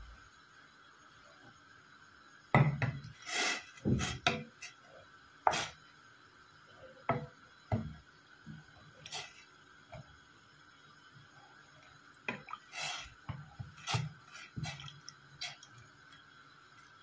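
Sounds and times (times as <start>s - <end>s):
water stirred in a pot: 8.5s - 10.2s, 11.2s - 17.0s.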